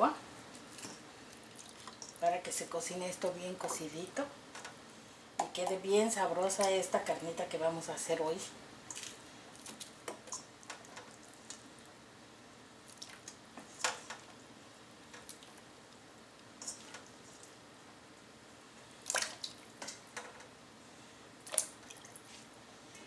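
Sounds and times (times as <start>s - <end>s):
small water splashes and drips: 1.5s - 2.2s, 12.9s - 13.3s, 19.0s - 19.7s, 21.4s - 22.3s.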